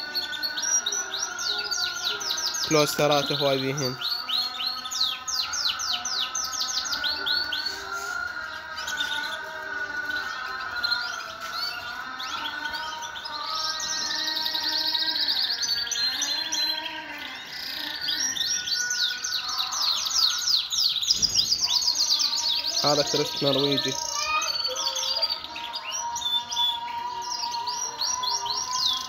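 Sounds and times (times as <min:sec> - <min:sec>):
canaries singing in chorus: 0:00.0 - 0:29.0.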